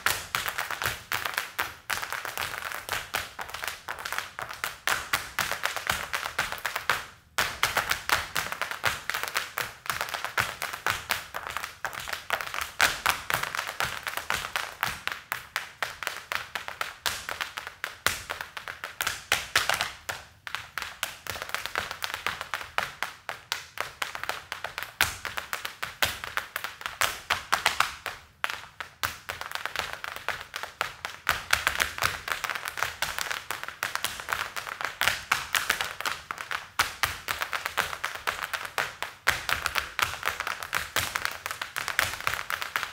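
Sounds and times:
hard shoes tap dancing: 0.0 - 42.9.

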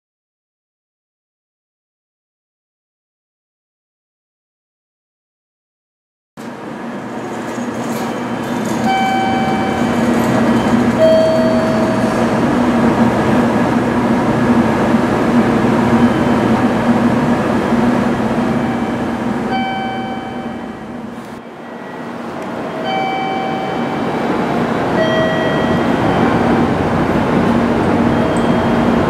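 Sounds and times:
train running through station: 6.4 - 29.0
steady low hum: 8.3 - 29.0
short high tones: 8.8 - 12.4, 18.5 - 26.8, 28.0 - 29.0.

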